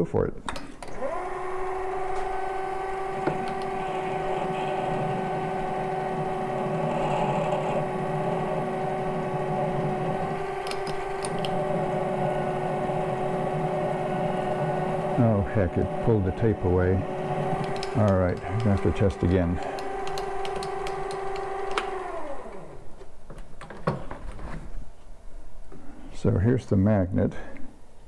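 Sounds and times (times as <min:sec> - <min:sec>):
lathe motor whine: 0:00.8 - 0:22.8.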